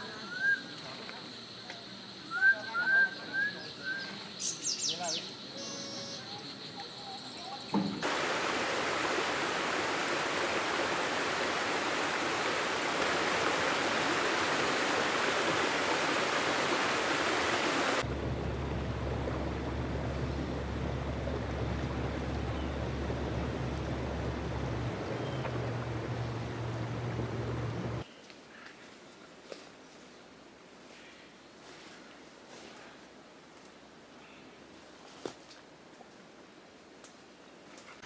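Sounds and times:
steady low hum: 17.9 - 28.0.

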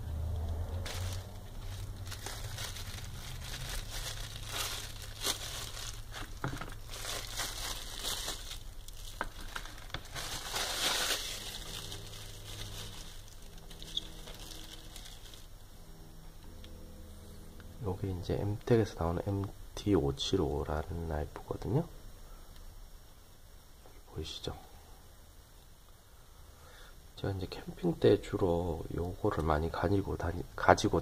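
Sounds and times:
plastic bag crinkling: 0.2 - 15.6.

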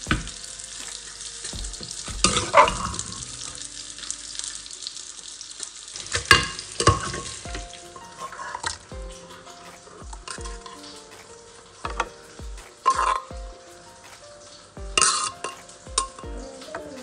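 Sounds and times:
soft background music: 0.0 - 17.0.

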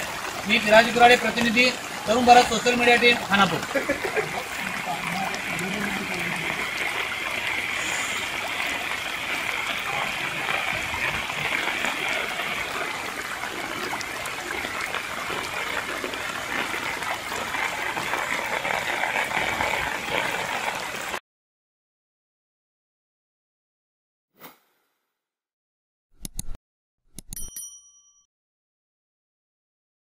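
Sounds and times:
river water rushing: 0.0 - 21.2.

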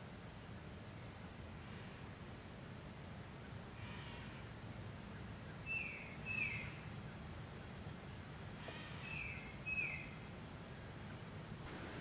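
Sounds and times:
bird calling: 5.5 - 6.9, 8.0 - 10.2
faint low rumble: 10.2 - 12.0.

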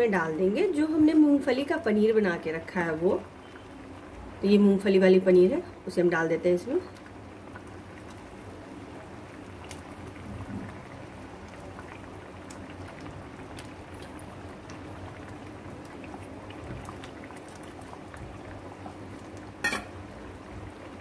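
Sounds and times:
bubbles popping in boiling gravy: 0.2 - 21.0.

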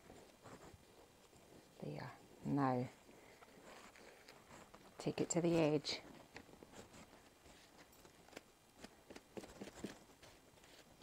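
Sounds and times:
brush tapping and dabbing: 4.6 - 11.0.

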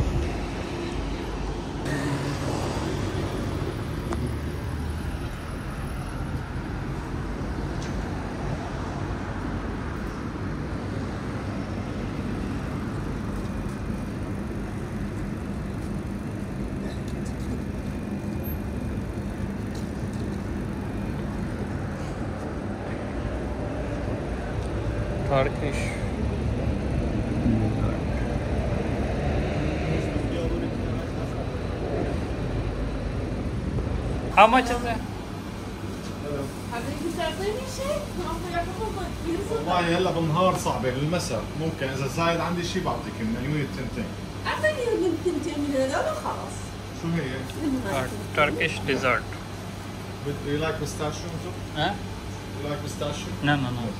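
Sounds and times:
street traffic rumble: 0.0 - 53.9.

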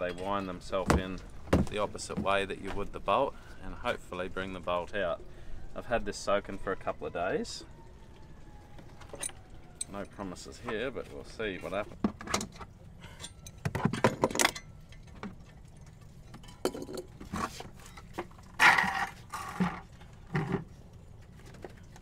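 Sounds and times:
metal tool clinks and scrapes: 12.3 - 14.8.

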